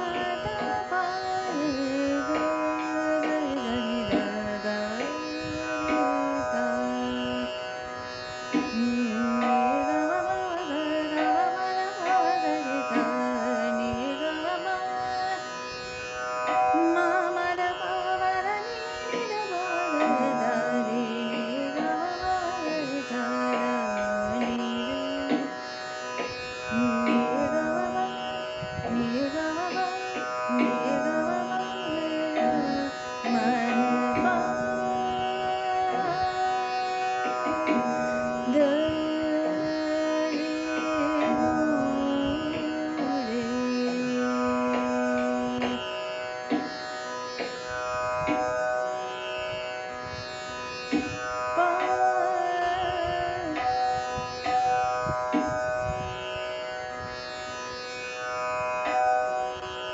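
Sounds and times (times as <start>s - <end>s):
woman singing classical melody: 0.0s - 7.6s, 8.6s - 15.6s, 16.7s - 25.6s, 26.7s - 45.9s, 51.0s - 54.8s.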